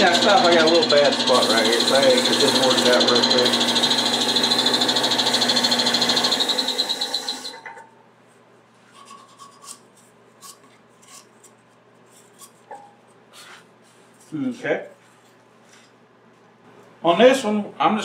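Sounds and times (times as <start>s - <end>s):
sandpaper rasping on spinning wood: 0.0s - 6.4s.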